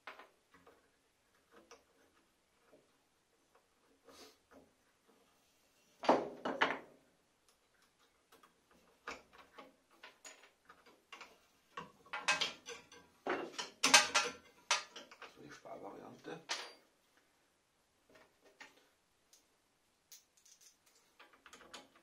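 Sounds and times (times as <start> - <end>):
clicks and knocks of saw parts: 7.5 - 15.5, 20.2 - 22.0.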